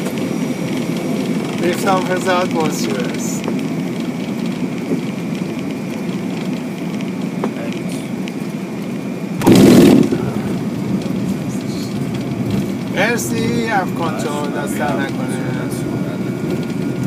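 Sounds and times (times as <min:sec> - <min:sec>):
jet engines: 0:00.0 - 0:17.0
wheels rumbling on runway: 0:00.0 - 0:17.0
loud rushing burst: 0:09.4 - 0:10.9.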